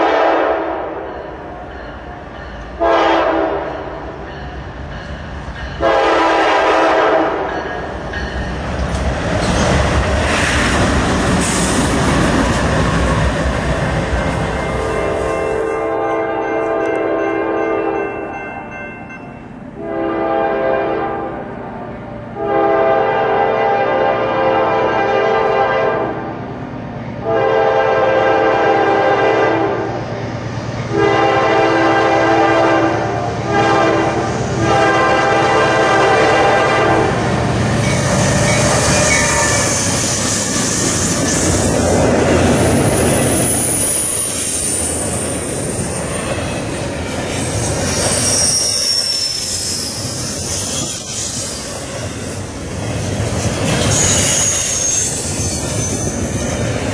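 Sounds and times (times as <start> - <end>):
locomotive air horn blasts: 0.0 - 1.0, 2.8 - 3.8, 5.8 - 7.5, 19.8 - 21.4, 22.4 - 26.2, 27.2 - 29.9, 30.9 - 37.2
train wheel clatter: 7.4 - 15.8, 37.0 - 56.9
high-pitched wheel squeal: 37.8 - 41.5, 43.3 - 45.7, 47.5 - 52.6, 53.8 - 56.7.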